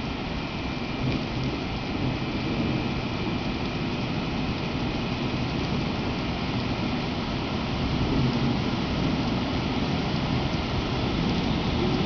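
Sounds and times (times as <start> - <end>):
rain on wet pavement: 0.0 - 12.0
tram wheels rumbling on rails: 8.1 - 12.0.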